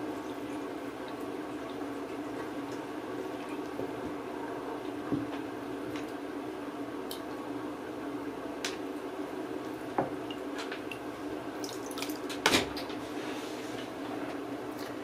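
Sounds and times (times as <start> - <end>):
water splashing in a tub: 10.9 - 12.4.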